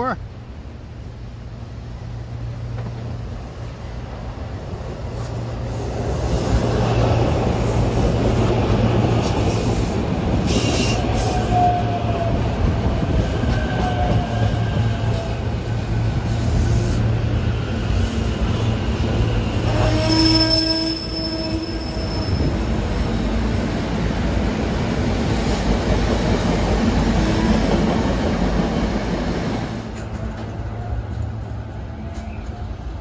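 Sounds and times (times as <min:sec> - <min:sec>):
train wheels rumbling on rail: 0:00.3 - 0:33.0
high wheel squeal: 0:19.6 - 0:22.7.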